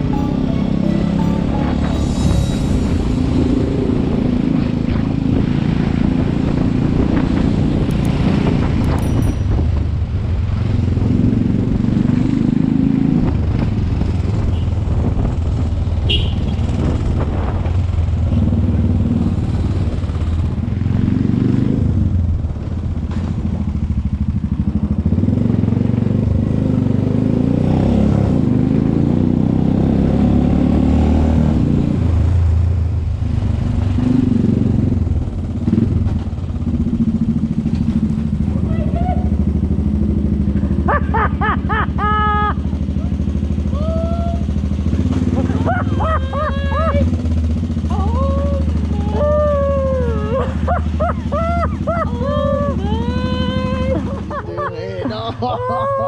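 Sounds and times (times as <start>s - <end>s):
motorcycle engine running: 0.0s - 27.4s, 32.0s - 54.5s.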